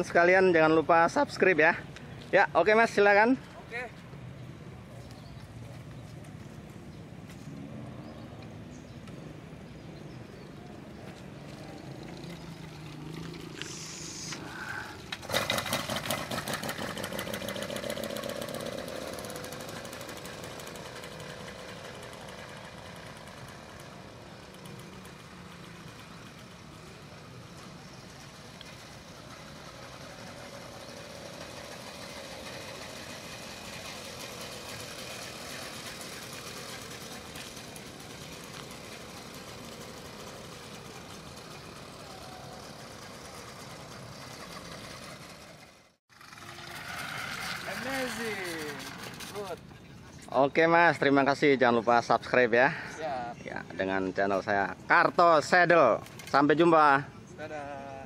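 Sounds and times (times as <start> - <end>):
motorized bicycle engine running: 11.4 - 49.7.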